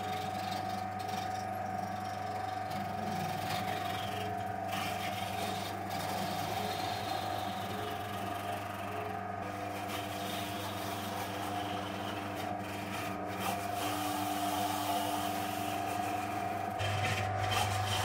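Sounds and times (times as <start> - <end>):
lathe motor humming: 0.0 - 18.0
tool scraping apple: 1.9 - 18.0.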